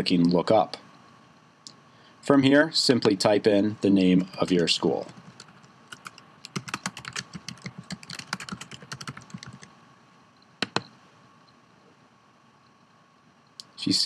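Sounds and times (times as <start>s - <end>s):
keyboard typing: 4.2s - 9.7s, 10.6s - 10.9s.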